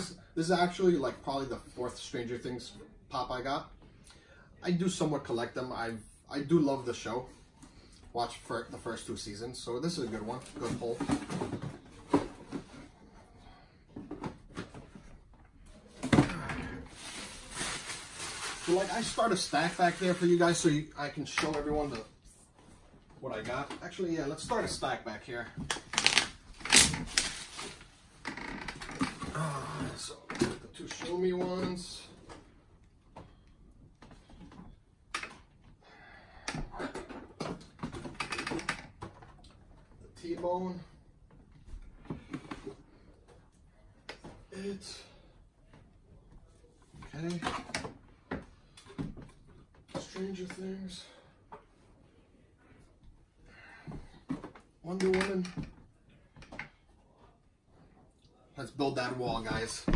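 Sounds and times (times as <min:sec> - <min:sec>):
rustling: 0:16.8 - 0:20.7
packaging rustle: 0:25.9 - 0:27.9.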